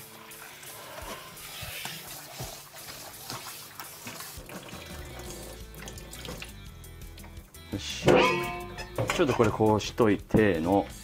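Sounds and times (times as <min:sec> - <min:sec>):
background music: 0:00.0 - 0:11.0
noodles rinsed by hand: 0:00.0 - 0:11.0
tap running into metal sink: 0:08.0 - 0:09.6.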